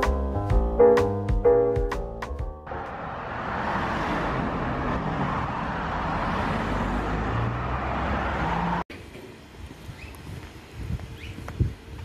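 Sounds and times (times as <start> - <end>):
cars going by: 2.6 - 9.5.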